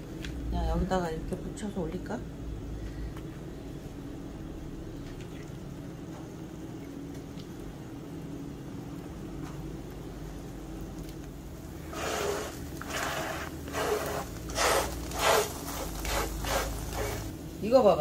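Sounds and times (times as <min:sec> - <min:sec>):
batter sizzling in oil: 0:10.9 - 0:18.0.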